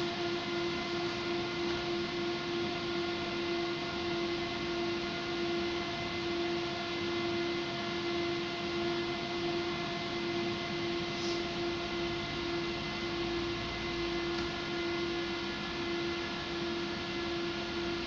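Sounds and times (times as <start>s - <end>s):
electrical equipment humming: 7.7s - 18.0s.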